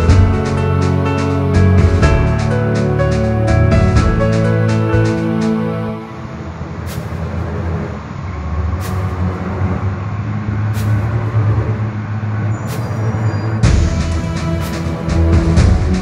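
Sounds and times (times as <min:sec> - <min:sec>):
music: 0:00.0 - 0:06.7, 0:13.6 - 0:16.0
heavy vehicle engine rumbling: 0:00.0 - 0:16.0.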